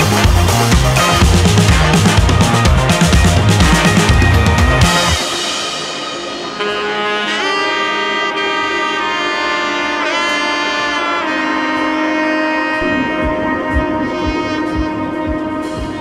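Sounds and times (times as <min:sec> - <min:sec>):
low beat: 0:00.0 - 0:07.4, 0:12.5 - 0:16.0
saxophone-like horn melody: 0:00.0 - 0:16.0.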